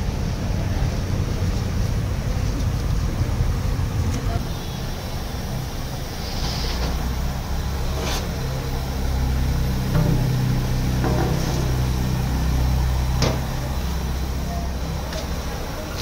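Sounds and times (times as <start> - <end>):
low mechanical hum: 0.0 - 16.0
sharp knocks: 9.9 - 12.1.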